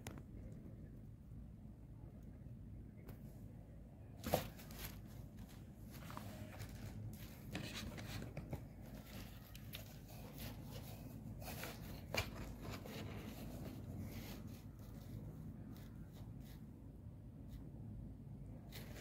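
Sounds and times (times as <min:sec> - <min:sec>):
low room hum: 0:00.0 - 0:19.0
smartphone handling rustles: 0:04.2 - 0:15.3.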